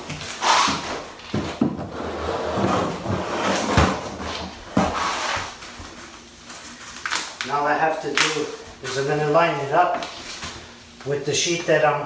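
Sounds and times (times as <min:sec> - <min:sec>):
membrane sheet rustling and sliding: 0:00.0 - 0:07.3.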